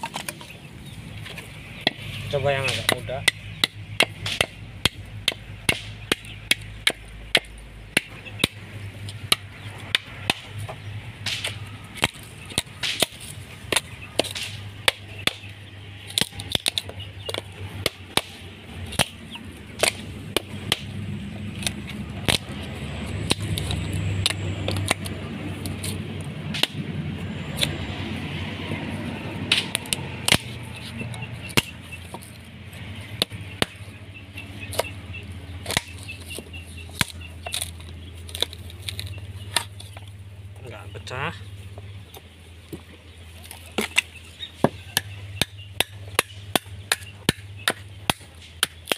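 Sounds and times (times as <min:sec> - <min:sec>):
coconut shell cracking: 0:01.8 - 0:40.6, 0:41.4 - 0:48.9.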